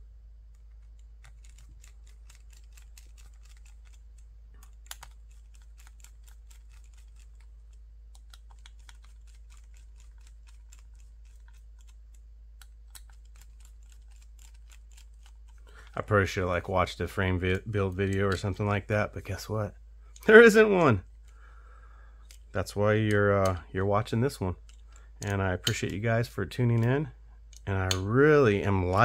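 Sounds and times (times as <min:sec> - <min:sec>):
small screws clicking: 0:00.6 - 0:16.0, 0:22.2 - 0:22.6, 0:24.6 - 0:26.0, 0:27.4 - 0:28.1.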